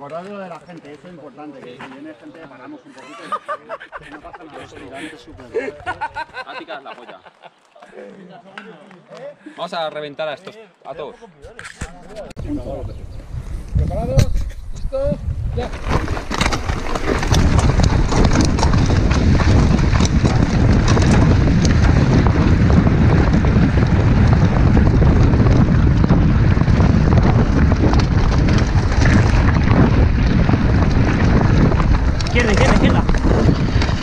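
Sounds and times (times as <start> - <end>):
wind buffeting microphone: 12.4 - 34.0
bike tyres rattling over stones: 15.3 - 34.0.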